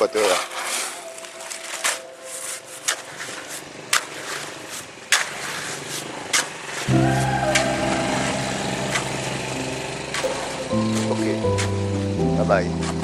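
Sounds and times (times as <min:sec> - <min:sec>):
low steady hum: 0:06.9 - 0:11.9.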